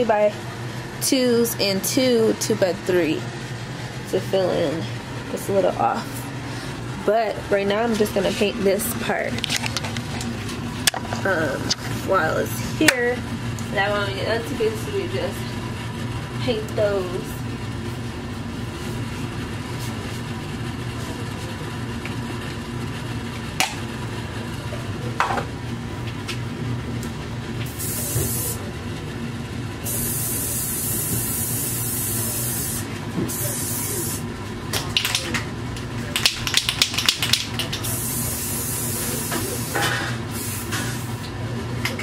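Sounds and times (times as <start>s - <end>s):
steady low hum: 0.0s - 42.0s
spray can hissing: 27.7s - 28.6s, 29.9s - 34.2s, 37.8s - 39.8s, 40.4s - 41.1s.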